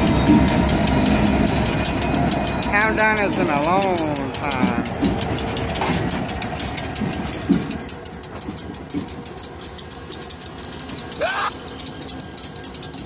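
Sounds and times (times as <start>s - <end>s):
crossing bell dinging: 0.0s - 6.6s
diesel locomotive engine hum: 0.0s - 13.0s.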